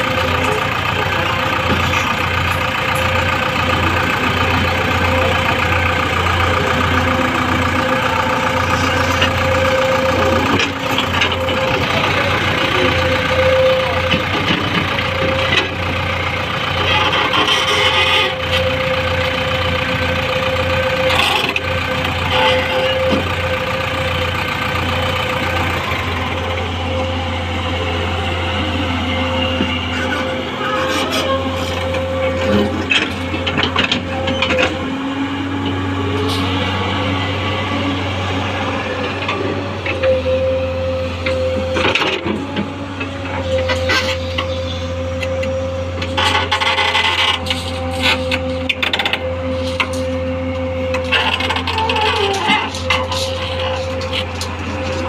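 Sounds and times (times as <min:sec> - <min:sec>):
steady whine: 0:00.0 - 0:42.3
excavator diesel engine running: 0:00.0 - 0:55.0.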